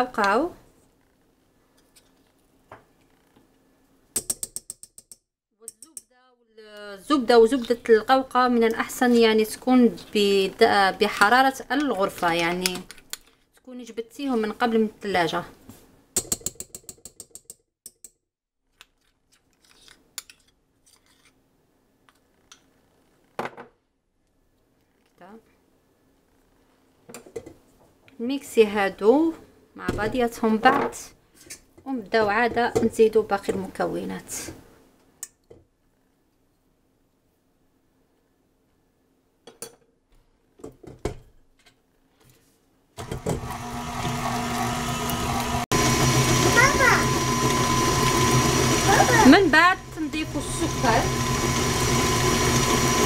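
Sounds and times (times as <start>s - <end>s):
stand mixer motor humming: 43.0s - 53.0s.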